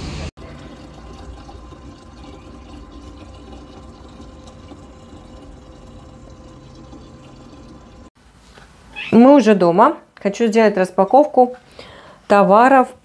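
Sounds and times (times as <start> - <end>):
water running into plastic bottle: 0.4 - 8.1.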